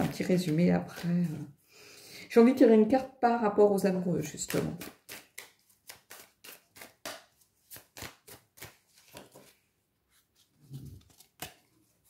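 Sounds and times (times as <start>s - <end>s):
cards being shuffled: 0.0s - 1.5s, 4.2s - 12.0s.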